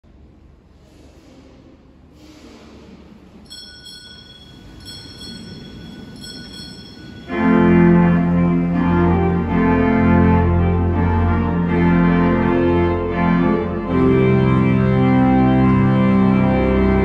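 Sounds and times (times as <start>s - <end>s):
faint high steady tones: 3.4s - 10.0s
church organ chord: 4.8s - 17.0s.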